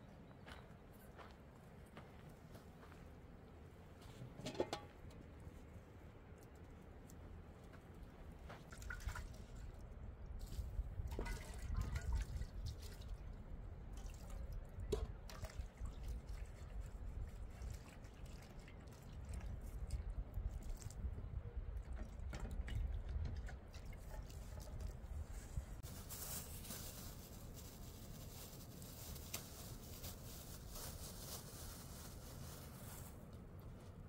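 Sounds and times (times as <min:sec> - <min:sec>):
water dripping and splashing: 0:07.9 - 0:21.0.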